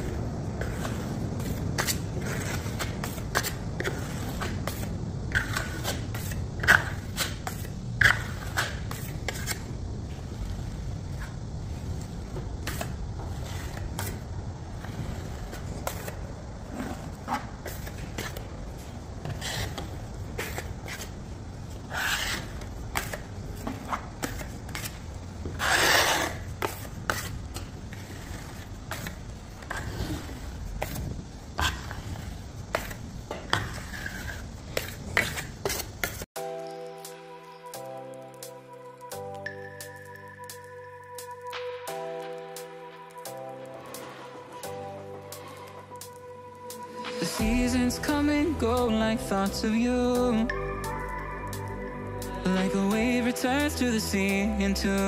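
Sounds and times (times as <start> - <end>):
trowel scraping plaster: 0.6 - 9.7, 21.9 - 31.0, 31.6 - 36.3.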